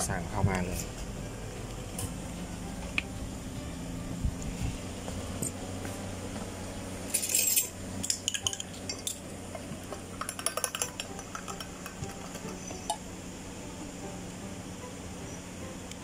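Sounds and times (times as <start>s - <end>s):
steady low hum: 0.0s - 16.0s
metal spoon clinking glassware: 7.1s - 9.2s.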